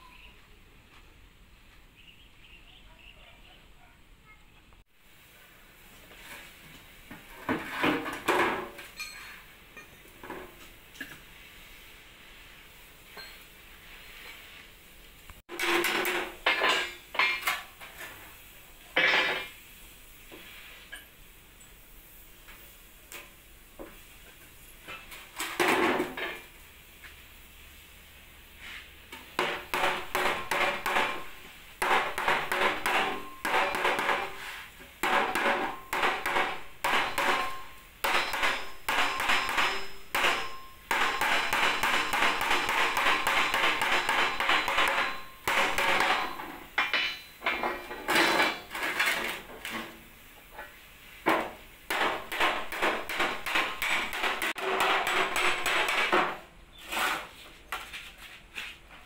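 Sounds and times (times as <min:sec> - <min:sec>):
hammer blows on metal: 0:35.0 - 0:47.4.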